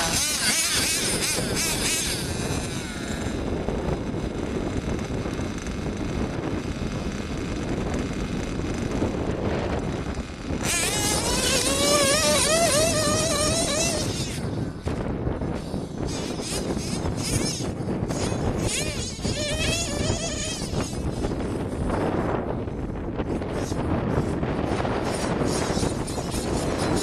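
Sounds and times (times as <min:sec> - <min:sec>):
nitro engine revving unevenly: 0:00.0 - 0:03.4, 0:10.6 - 0:14.4
high-pitched engine whine: 0:00.0 - 0:27.0.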